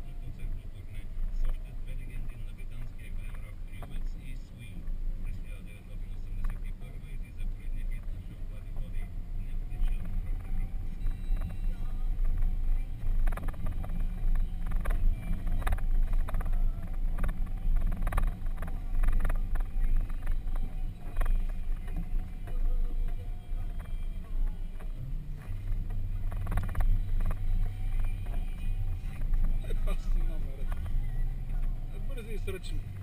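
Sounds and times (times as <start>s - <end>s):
engine and tyre rumble: 0.0s - 33.0s
steady engine drone: 0.0s - 33.0s.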